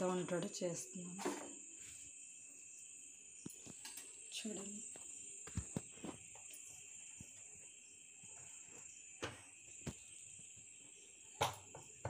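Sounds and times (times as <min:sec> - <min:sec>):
crickets trilling: 0:00.0 - 0:12.0.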